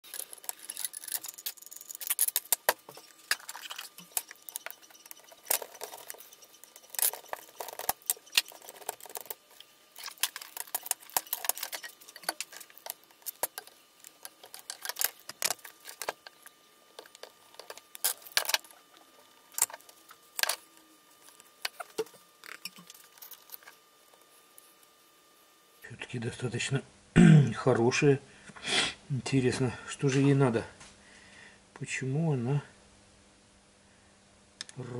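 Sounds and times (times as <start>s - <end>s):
metal tool parts clattering: 0.0s - 18.8s.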